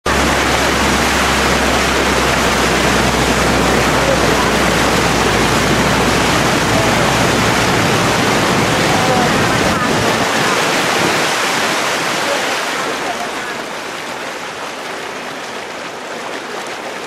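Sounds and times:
floodwater rushing and splashing: 0.0s - 17.0s
low hum: 0.1s - 10.3s.

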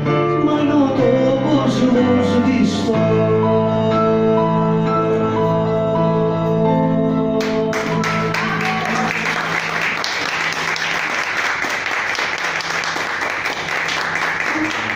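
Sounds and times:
keyboard notes: 0.0s - 9.6s
audience applauding: 7.4s - 14.9s.

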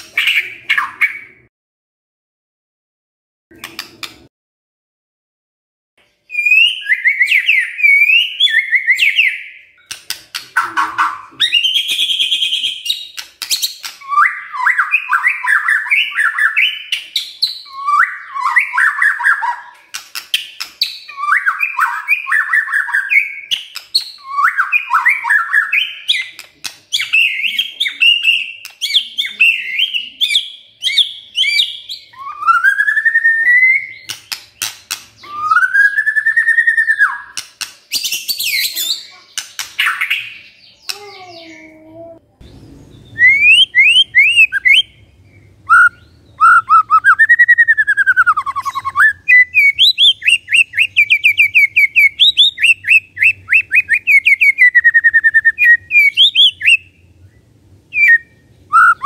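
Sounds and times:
bird chattering song: 6.3s - 41.8s, 42.4s - 59.0s
bird clicks: 28.6s - 29.0s, 34.0s - 35.1s
rising slurred whistles: 31.4s - 34.1s, 43.0s - 45.0s, 45.6s - 56.9s, 57.9s - 59.0s.

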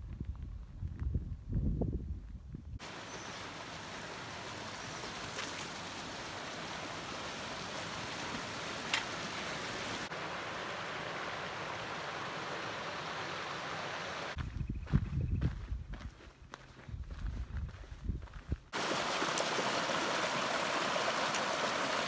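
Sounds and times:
creek water running over rocks: 2.8s - 14.4s, 18.7s - 22.0s.

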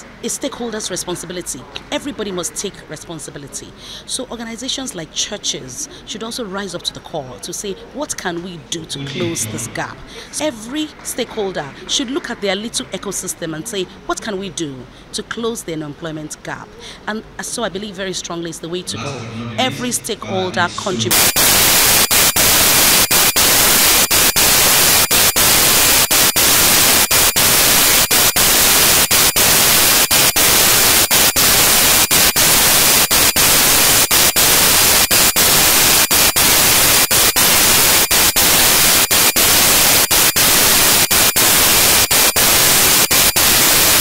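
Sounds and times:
loud static hiss: 20.7s - 44.0s.

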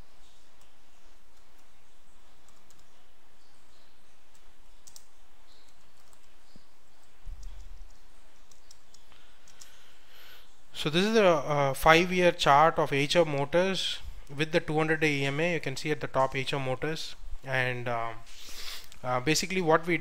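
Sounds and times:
keyboard typing: 2.4s - 3.1s, 4.2s - 9.8s.

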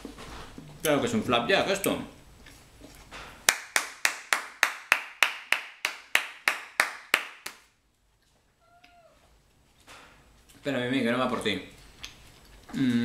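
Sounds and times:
person clapping hands: 3.5s - 7.7s.

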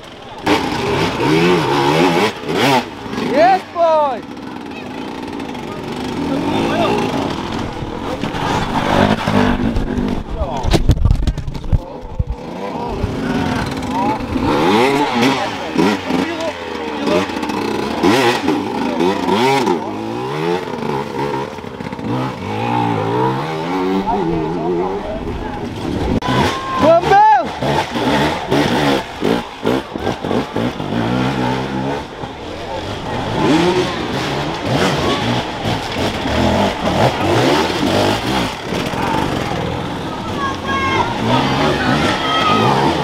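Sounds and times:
dirt bike engine revving: 0.0s - 10.8s, 11.4s - 43.0s.

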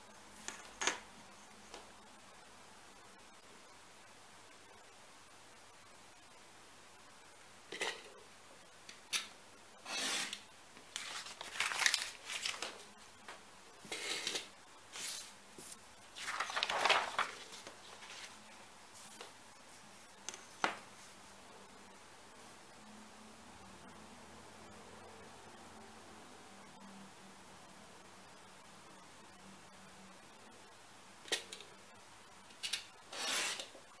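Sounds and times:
paper sheets rustling and sliding: 9.9s - 12.9s, 13.9s - 19.3s, 33.1s - 33.7s.

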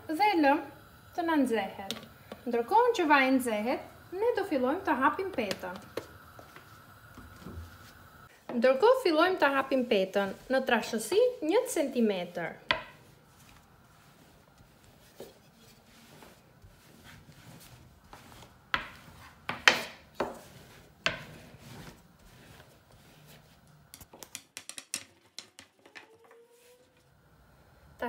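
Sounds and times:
rolling pin rubbing dough: 7.8s - 12.0s, 12.7s - 24.2s, 25.8s - 27.1s.

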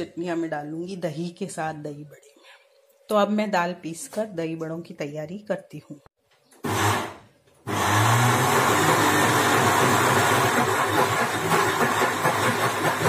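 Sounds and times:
mixer grinder motor: 6.6s - 13.0s.

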